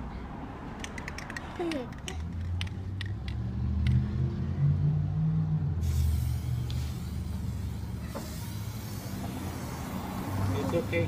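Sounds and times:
vehicle engine rumble: 0.0 - 11.0
aerosol can spraying: 5.8 - 11.0.

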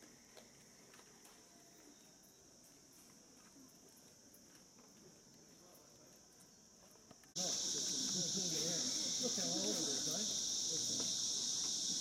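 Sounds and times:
high-pitched insect chorus: 0.0 - 12.0.

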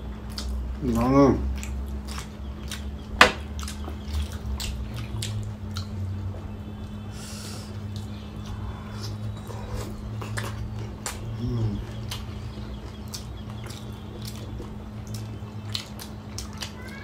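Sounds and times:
wet chewing and smacking: 0.0 - 7.1, 7.7 - 17.0
steady low hum: 0.0 - 17.0.

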